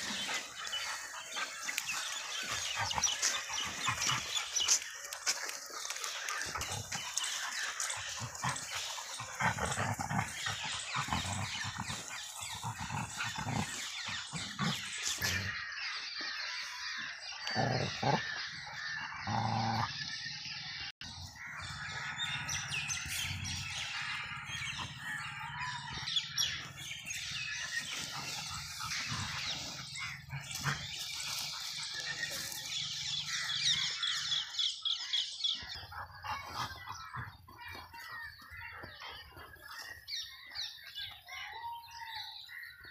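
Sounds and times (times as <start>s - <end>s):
birds chirping: 0.0s - 42.9s
dog growling: 6.3s - 15.6s, 17.4s - 20.2s.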